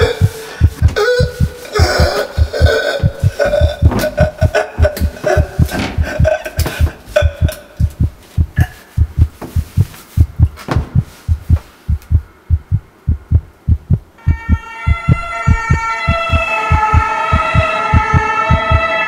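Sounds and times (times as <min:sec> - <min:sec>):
strained gasping breaths: 0:00.0 - 0:07.6
heartbeat thumps: 0:00.0 - 0:19.0.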